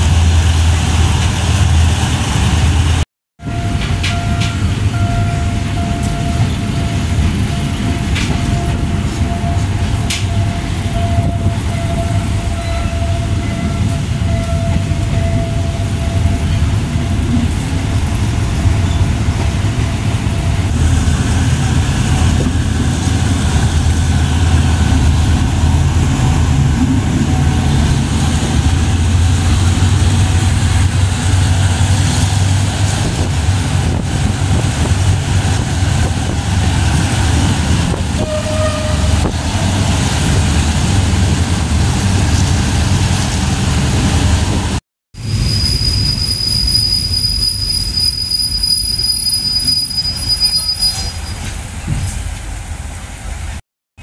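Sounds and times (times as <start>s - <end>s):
train wheels rumbling on rails: 0.0s - 53.6s
high squeal: 45.2s - 51.5s.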